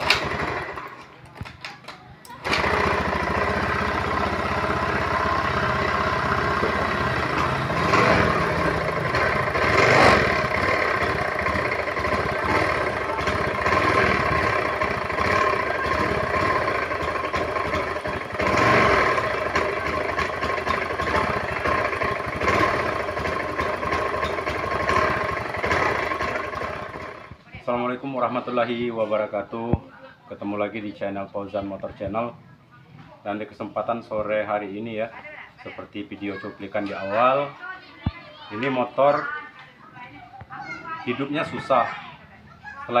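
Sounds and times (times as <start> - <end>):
scooter engine stuttering: 0.0 - 27.4.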